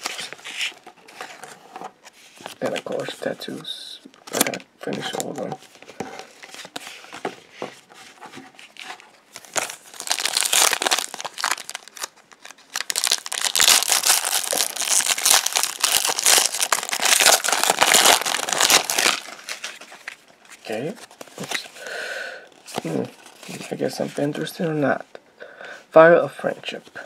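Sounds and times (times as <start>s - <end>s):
foil wrapper crinkling: 9.4s - 20.2s.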